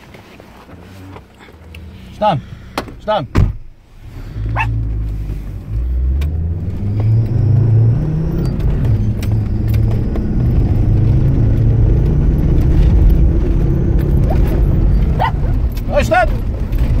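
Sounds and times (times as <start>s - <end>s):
car engine accelerating: 3.8s - 17.0s.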